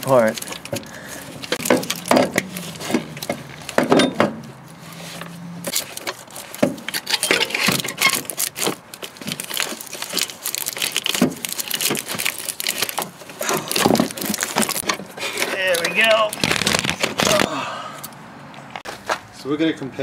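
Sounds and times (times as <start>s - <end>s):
metallic clatter and scraping: 0.0s - 10.4s.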